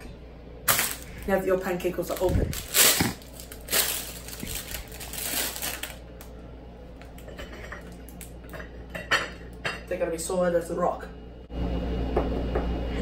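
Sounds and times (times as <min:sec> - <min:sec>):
plastic bag crinkling: 0:00.7 - 0:06.3.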